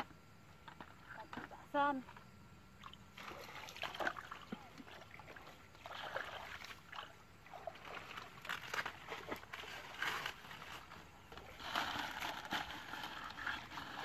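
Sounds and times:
bare feet splashing in water: 0:02.8 - 0:14.0.

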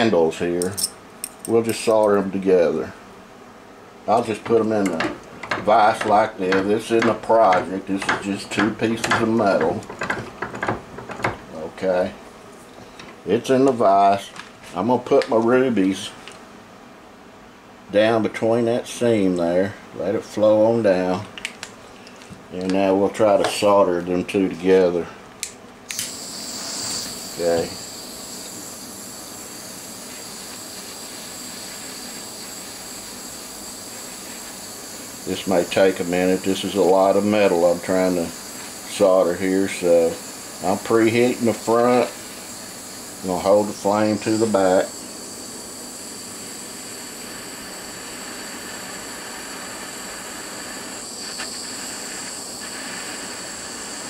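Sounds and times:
gas torch hissing: 0:00.0 - 0:03.1, 0:04.0 - 0:15.3, 0:25.9 - 0:54.0.

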